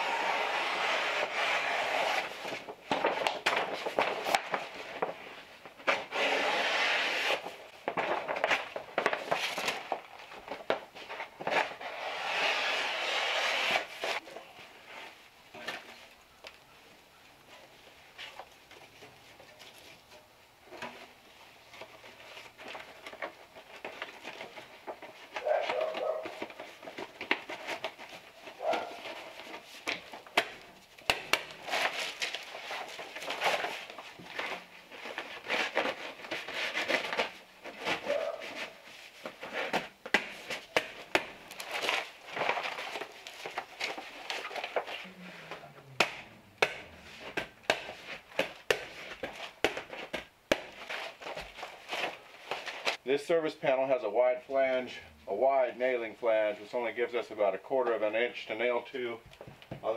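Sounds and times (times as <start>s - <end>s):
stiff paper crinkling and rustling: 1.9s - 6.1s, 7.4s - 11.8s, 21.4s - 53.0s.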